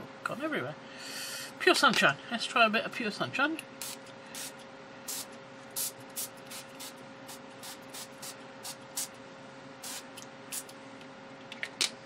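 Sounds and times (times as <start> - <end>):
spray bottle hissing sprays: 3.8 - 9.1, 9.8 - 10.7.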